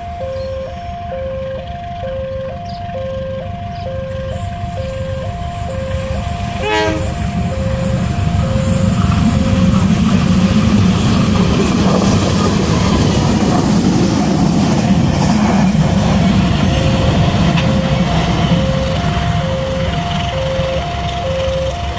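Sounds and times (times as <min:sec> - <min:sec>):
level crossing alarm two tones: 0:00.0 - 0:09.8, 0:16.4 - 0:21.9
diesel locomotive passing: 0:00.0 - 0:21.9.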